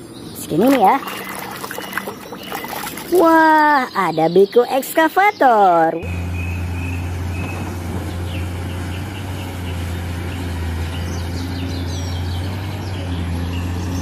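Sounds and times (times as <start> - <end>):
birds chirping faintly: 0.0 - 14.0
excavator diesel engine droning: 6.0 - 14.0.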